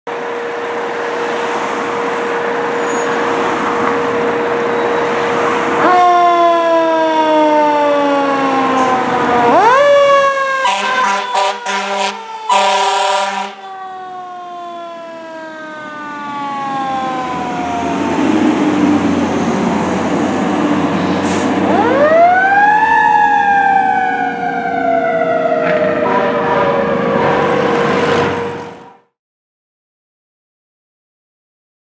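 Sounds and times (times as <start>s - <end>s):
fire truck siren winding up: 0.2s - 29.0s
short horn blasts: 10.6s - 13.6s.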